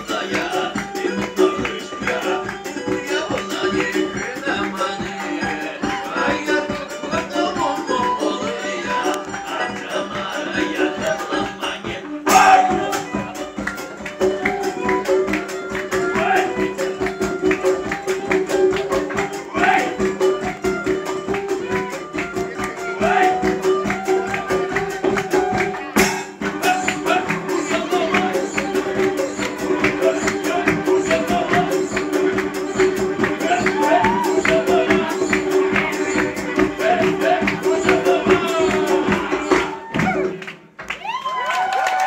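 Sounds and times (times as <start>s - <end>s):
fast percussion beat: 0.0s - 40.8s
loud drum hit: 12.3s - 13.1s, 26.0s - 26.9s.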